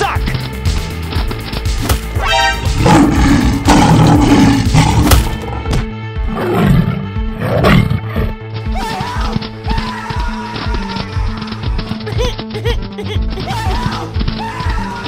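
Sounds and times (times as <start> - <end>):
dramatic background music: 0.0 - 15.0
lion roaring: 2.8 - 8.4.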